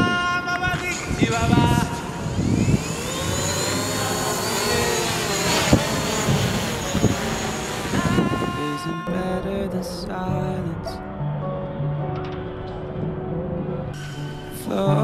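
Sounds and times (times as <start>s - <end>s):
drone propellers whining: 1.7s - 9.0s.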